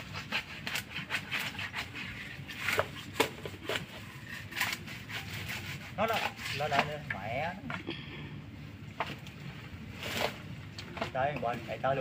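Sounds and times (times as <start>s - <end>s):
dry leaves and twigs rustling: 8.7s - 12.0s.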